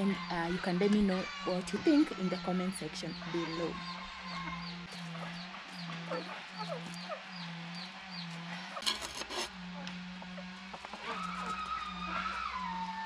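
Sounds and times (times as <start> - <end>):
low pulsing tone: 0.0 - 13.0
high chirping call: 1.2 - 8.8.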